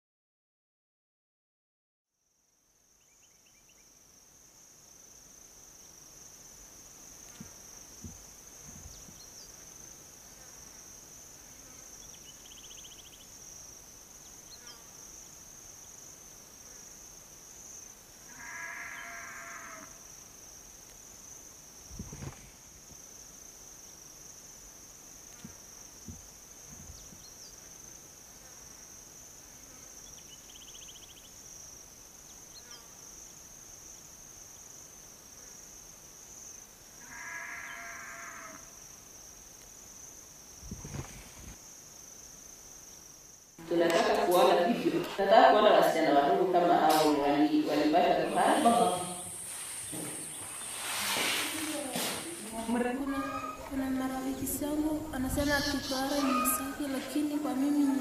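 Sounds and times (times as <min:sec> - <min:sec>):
insects chirring: 0:02.2 - 0:58.0
faint chirps: 0:11.7 - 0:13.4, 0:30.0 - 0:31.4.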